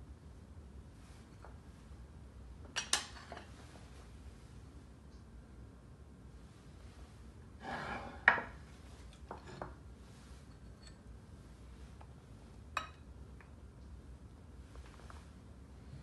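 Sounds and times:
dish scraping: 7.6 - 8.6
dishes clinking: 12.8 - 13.1.

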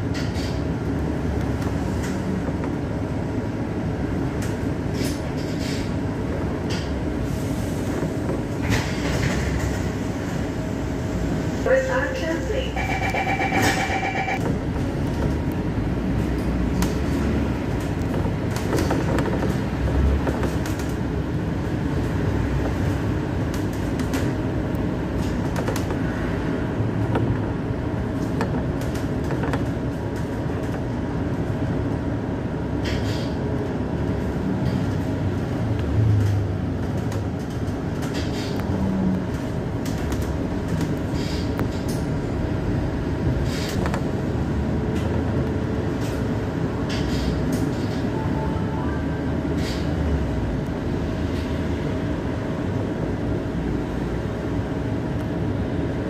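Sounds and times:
bus engine and road rumble: 0.0 - 56.0
small rattles and knocks: 17.8 - 20.9.

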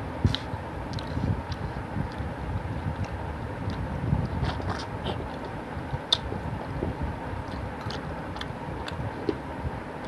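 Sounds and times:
low background rumble: 0.0 - 10.0.

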